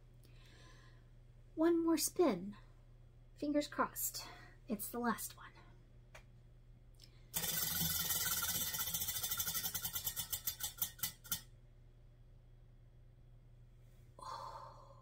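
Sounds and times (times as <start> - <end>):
prize wheel clicking: 7.4 - 11.5.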